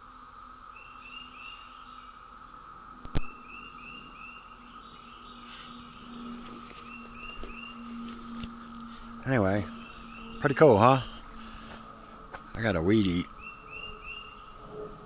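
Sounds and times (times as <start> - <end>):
cicadas droning: 0.0 - 15.0.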